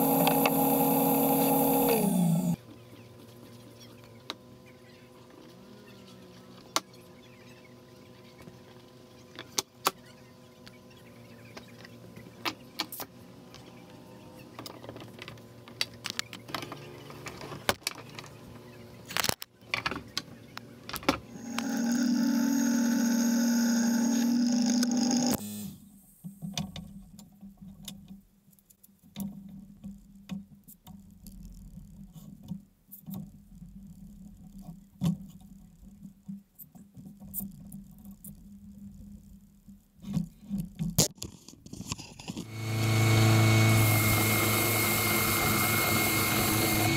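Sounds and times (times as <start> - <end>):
loud mechanical hum: 0.0 - 2.6, 20.7 - 25.8, 42.4 - 46.9.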